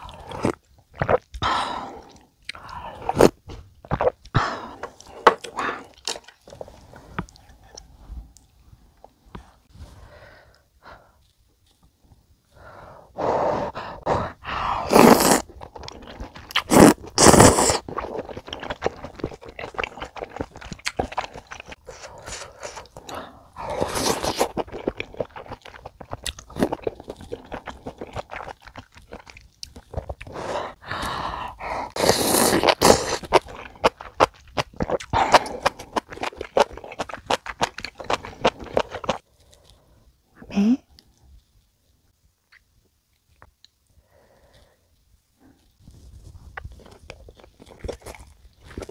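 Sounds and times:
noodle slurping: 0:14.0 - 0:29.3, 0:31.8 - 0:39.2
chewing: 0:15.0 - 0:30.4, 0:31.9 - 0:39.9, 0:45.5 - 0:48.9.

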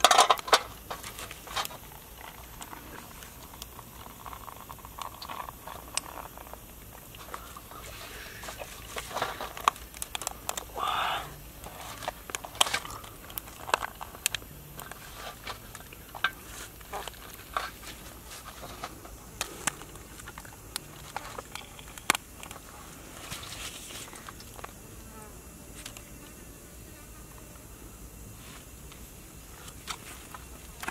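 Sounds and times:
crab shell cracking and snapping: 0:00.0 - 0:07.7, 0:08.4 - 0:10.8, 0:11.6 - 0:22.6.

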